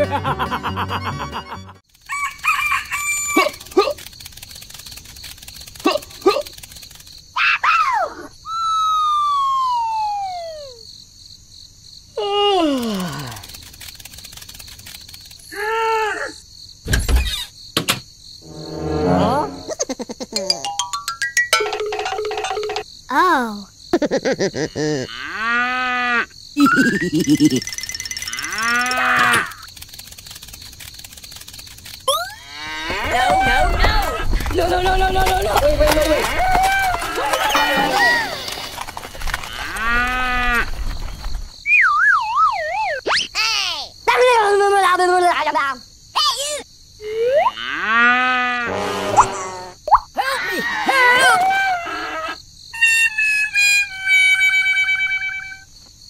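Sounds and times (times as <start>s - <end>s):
downward gliding tone: 18.5s - 19.7s
cartoon chirps: 41.6s - 43.6s, 49.0s - 50.3s.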